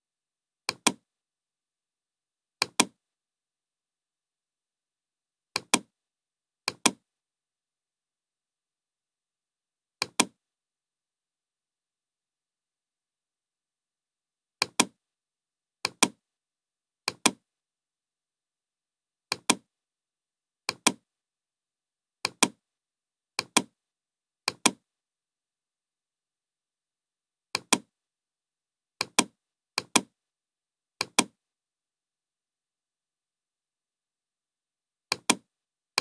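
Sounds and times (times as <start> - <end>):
computer mouse button clicking: 0.7 - 1.0, 2.6 - 3.0, 5.6 - 5.9, 6.7 - 7.0, 10.0 - 10.4, 14.6 - 15.0, 15.8 - 16.2, 17.1 - 17.4, 19.3 - 19.6, 20.7 - 21.0, 22.2 - 22.6, 23.4 - 23.7, 24.5 - 24.8, 27.6 - 27.9, 29.0 - 30.1, 31.0 - 31.4, 35.1 - 35.4.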